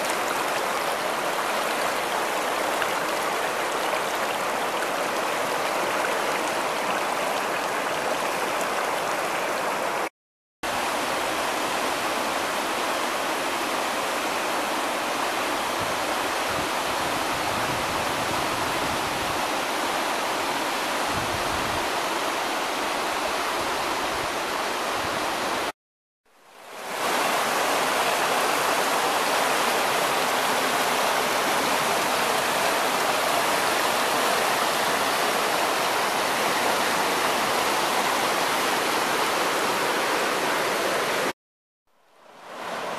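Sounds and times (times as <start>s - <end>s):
water rushing around rocks: 0.0s - 10.1s, 26.7s - 41.3s.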